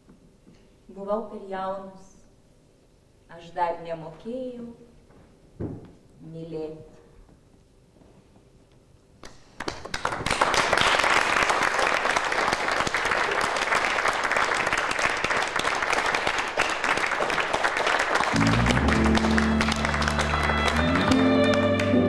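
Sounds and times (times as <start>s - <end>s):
audience applauding: 9.2s - 22.0s.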